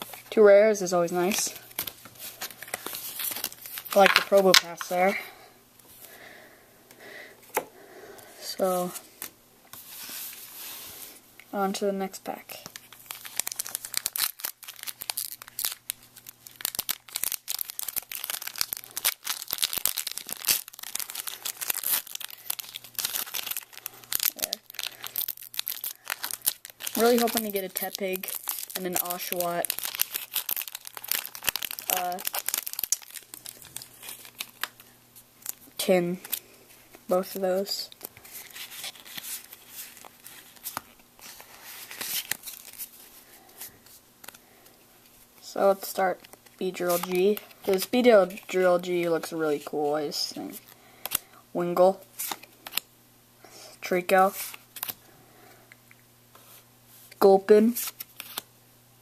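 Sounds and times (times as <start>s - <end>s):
foil wrapper tearing and crinkling: 1.3s - 4.8s, 12.7s - 36.4s, 37.2s - 42.9s, 57.8s - 58.5s.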